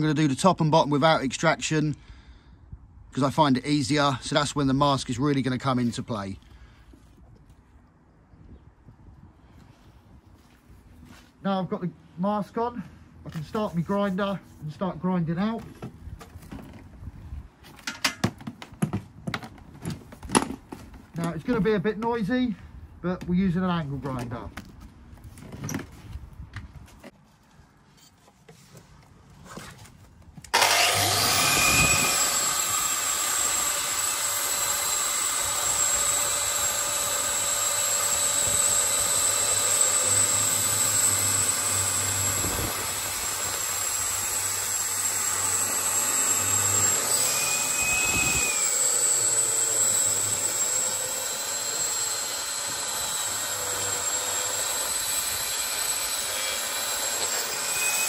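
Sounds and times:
angle grinder whining: 30.5s - 58.0s.

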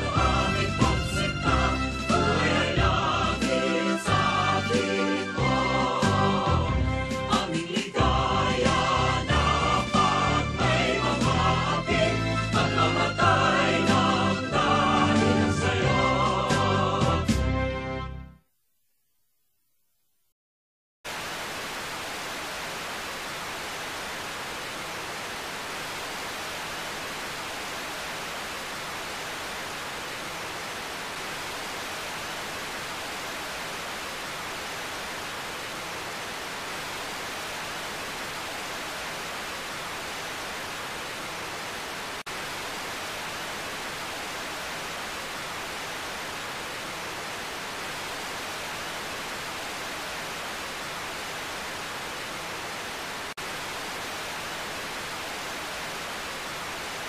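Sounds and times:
radio static hiss: 21.1s - 57.0s.

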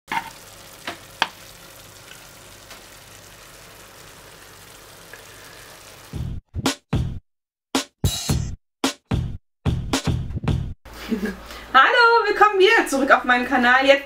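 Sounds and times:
food sizzling in frying pan: 0.1s - 6.3s
drum machine beats: 6.1s - 7.2s, 7.8s - 10.8s.

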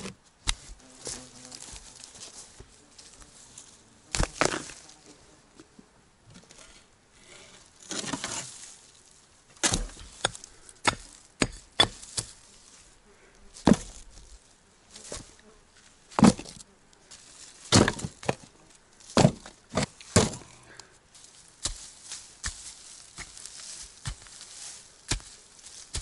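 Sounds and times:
stones and earth thudding: 4.1s - 4.8s, 9.6s - 12.4s, 13.6s - 14.1s, 16.1s - 16.6s, 17.6s - 18.5s, 19.1s - 20.6s, 21.6s - 26.0s
scrape: 6.4s - 9.0s, 21.2s - 26.0s.

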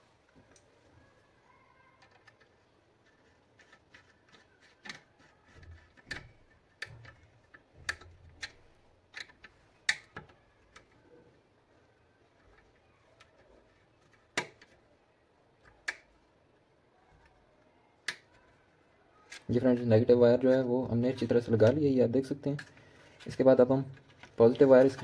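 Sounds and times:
plastic and metal clicks: 2.0s - 11.0s.

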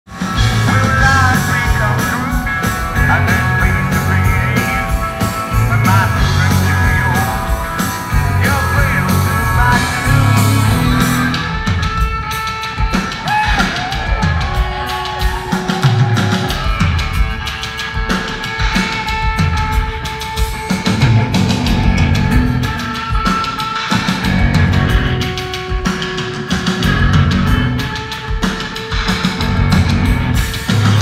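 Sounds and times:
live rock band playing: 0.0s - 31.0s
voices singing or yelling: 0.2s - 11.6s, 13.0s - 17.2s.

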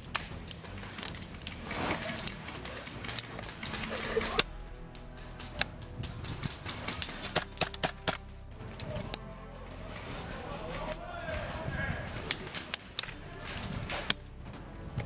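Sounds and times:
airsoft guns firing: 5.4s - 14.2s.

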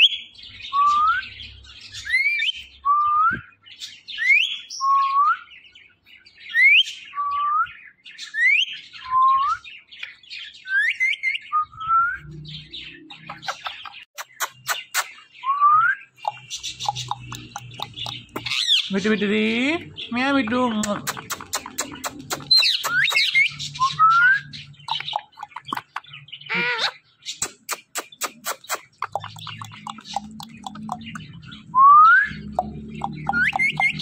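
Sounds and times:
parakeet whistled calls: 13.2s - 18.9s, 21.5s - 25.8s, 27.7s - 34.0s
sharp clicks: 16.2s - 18.7s, 20.8s - 23.4s, 27.4s - 31.4s.

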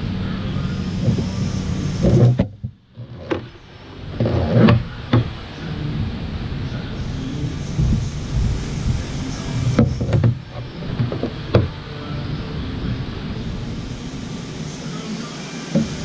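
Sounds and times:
low background noise: 0.0s - 16.0s
handling knocks and rubbing: 0.9s - 5.5s, 7.7s - 11.9s, 15.7s - 16.0s.

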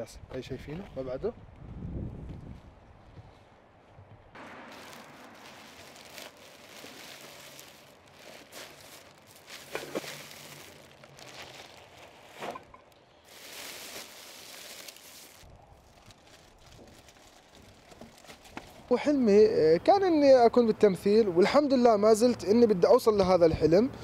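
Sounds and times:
plastic bags rustling: 4.4s - 18.8s.

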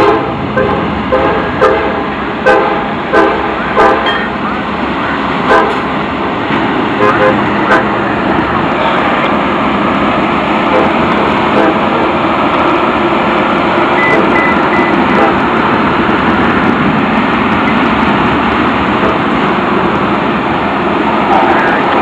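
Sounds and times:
train wheels on rail: 0.0s - 22.0s
back-up alarm beeps: 14.0s - 15.1s.

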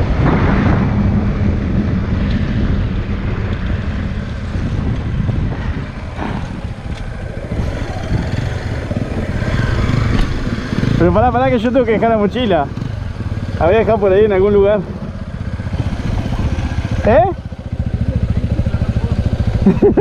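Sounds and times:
wind noise on microphone: 0.0s - 11.8s
motorcycle engine running: 0.0s - 20.0s.

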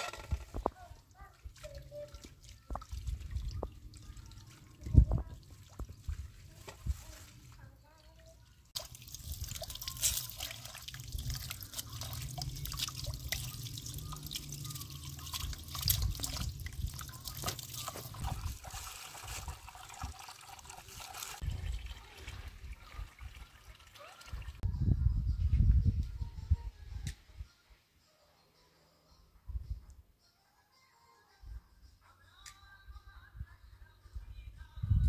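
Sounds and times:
water splashing onto a plate: 8.8s - 24.5s
water running from a hose: 8.8s - 24.6s.

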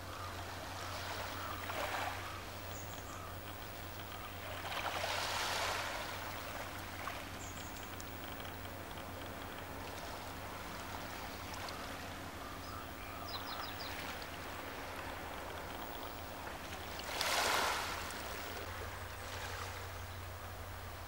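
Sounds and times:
low hum: 0.0s - 21.0s
water lapping on pebbles: 3.4s - 8.2s, 13.9s - 19.8s
rush of water: 3.6s - 8.3s, 13.8s - 20.0s.

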